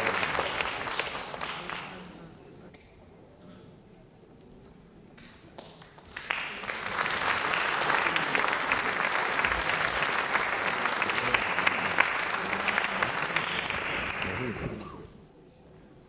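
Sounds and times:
audience applauding: 0:00.0 - 0:02.1, 0:05.6 - 0:15.0.

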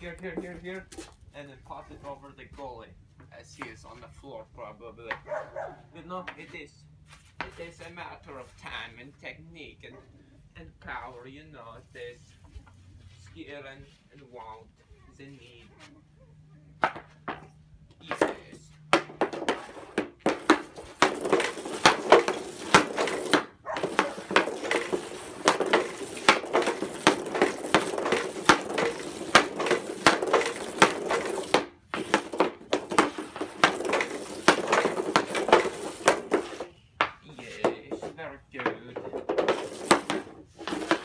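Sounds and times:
puck scraping on concrete: 0:00.0 - 0:02.7, 0:06.2 - 0:08.9, 0:16.8 - 0:41.0
hockey stick clacking a puck: 0:16.8 - 0:41.0.

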